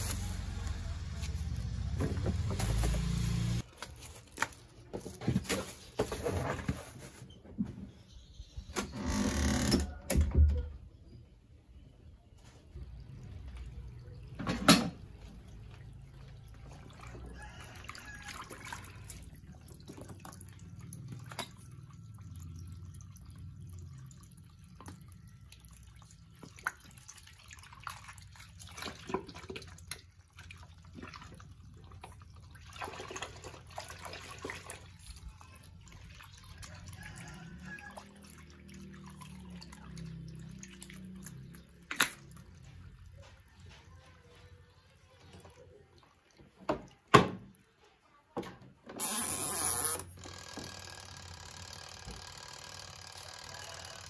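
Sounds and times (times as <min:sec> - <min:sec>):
water running from hose: 0:00.0 - 0:03.7.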